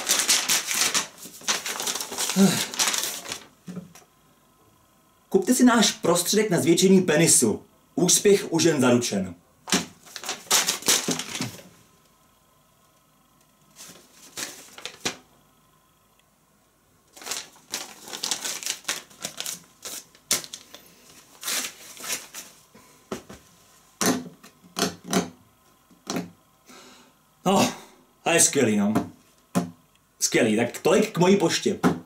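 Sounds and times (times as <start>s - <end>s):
paper rustling and crackling: 0.0s - 3.8s, 9.7s - 11.8s, 13.7s - 15.2s, 17.1s - 22.6s.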